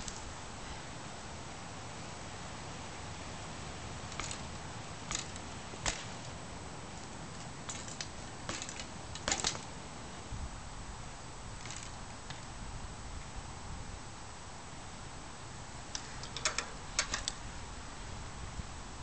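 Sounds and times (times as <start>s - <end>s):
bicycle clicks and rattles: 0.0s - 0.3s, 4.1s - 9.8s, 11.5s - 12.5s, 15.9s - 17.5s
steady hiss: 0.0s - 19.0s.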